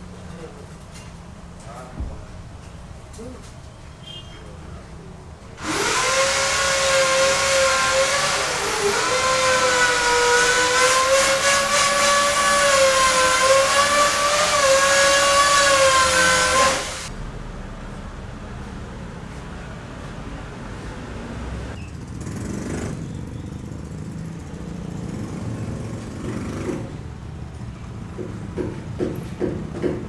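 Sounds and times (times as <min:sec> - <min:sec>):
power tool motor whining: 0:05.6 - 0:17.1.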